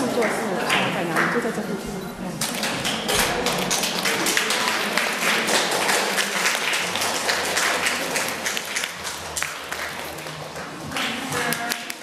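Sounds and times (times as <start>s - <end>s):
audience applauding: 2.4s - 12.0s.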